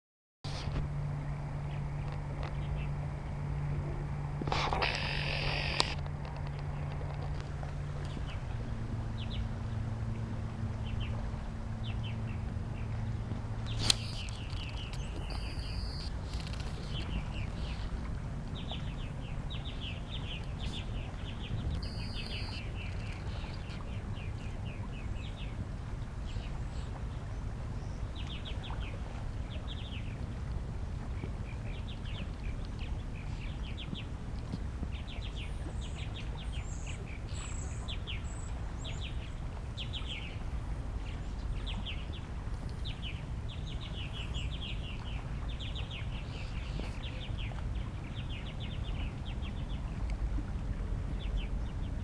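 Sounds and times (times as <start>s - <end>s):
low background hum: 0.5s - 52.0s
small birds chattering: 13.7s - 16.1s, 21.7s - 23.8s
sharp click: 13.7s - 16.8s.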